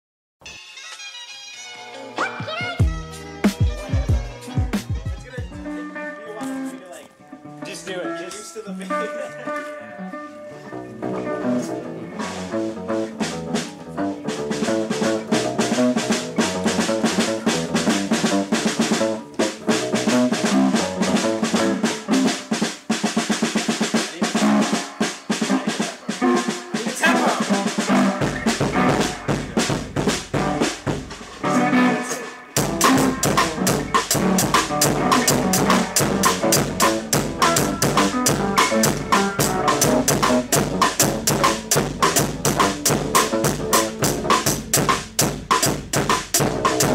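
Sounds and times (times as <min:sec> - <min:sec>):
steady drum beat: 0:02.5 - 0:05.8, 0:12.2 - 0:46.9
deep bass line: 0:02.8 - 0:05.7, 0:10.9 - 0:21.9, 0:28.0 - 0:31.9, 0:32.6 - 0:46.9.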